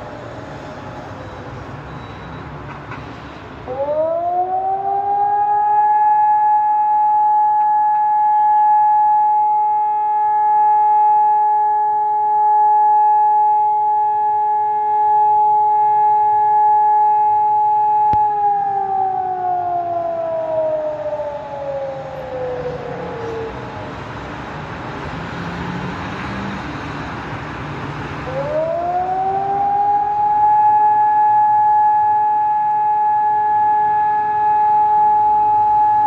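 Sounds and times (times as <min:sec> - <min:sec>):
siren wailing: 0:03.6 - 0:23.9, 0:28.2 - 0:36.0.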